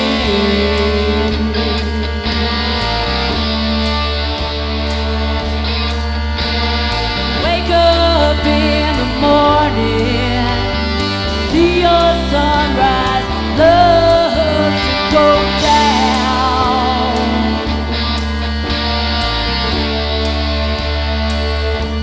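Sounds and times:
woman singing long notes: 0:00.0 - 0:03.6, 0:07.4 - 0:18.2
live rock band playing: 0:00.0 - 0:22.0.

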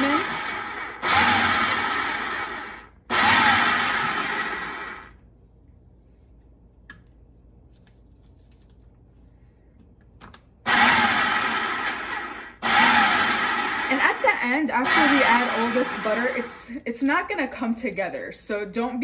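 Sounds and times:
food processor motor whirring: 0:00.0 - 0:05.1, 0:10.7 - 0:16.6.

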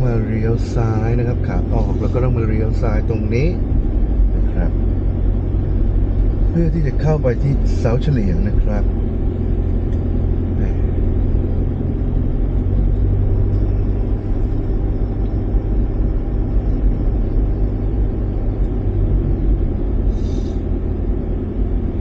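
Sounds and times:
vehicle engine and road noise: 0:00.0 - 0:22.0.

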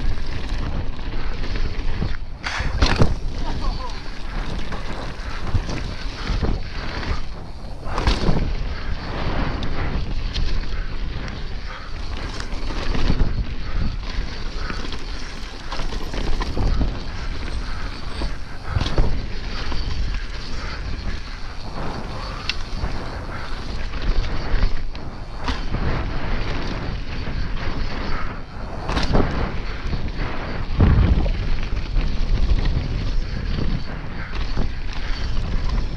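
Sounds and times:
bike knocking and rattling: 0:00.0 - 0:35.9
tyres rumbling on dirt: 0:00.0 - 0:35.9
wind on camera microphone: 0:00.0 - 0:35.9.

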